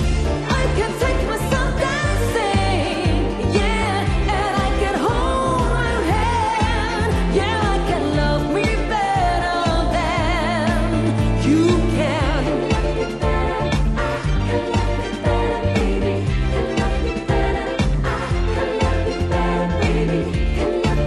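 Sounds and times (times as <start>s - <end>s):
pop backing with bass beat: 0.0s - 21.0s
woman singing into a microphone: 0.4s - 12.9s.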